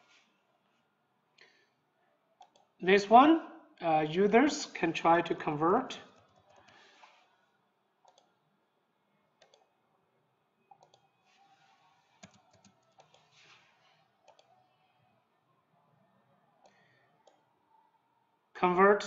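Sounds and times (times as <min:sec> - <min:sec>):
computer mouse clicks: 0:02.4 - 0:02.7, 0:06.1 - 0:07.3, 0:08.0 - 0:08.4, 0:09.4 - 0:09.7, 0:10.7 - 0:11.1, 0:12.2 - 0:14.5, 0:16.6 - 0:17.5
keyboard keystrokes: 0:12.2 - 0:13.3.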